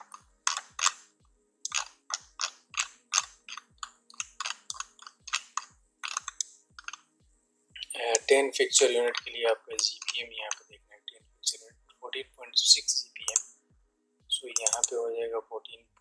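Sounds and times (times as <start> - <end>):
computer keyboard clicks: 0.5 - 1.0, 1.7 - 7.0.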